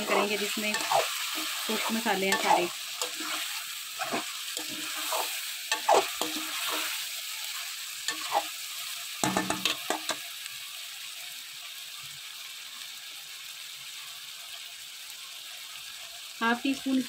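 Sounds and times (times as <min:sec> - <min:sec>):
metal spatula scraping a pan: 0:00.0 - 0:10.2
chicken sizzling in hot oil: 0:00.0 - 0:17.0.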